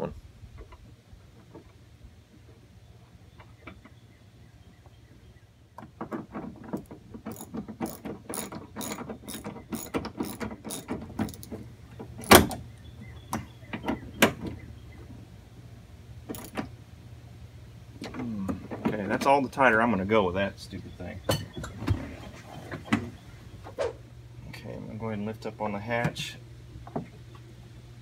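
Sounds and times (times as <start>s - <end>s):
socket ratchet clicking: 7.3s - 11.5s, 16.3s - 16.6s.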